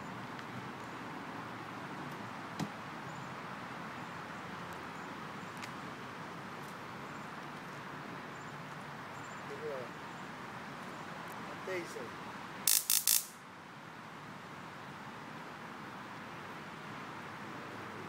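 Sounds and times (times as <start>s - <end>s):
outdoor background noise: 0.0s - 18.0s
sharp click: 12.7s - 13.4s.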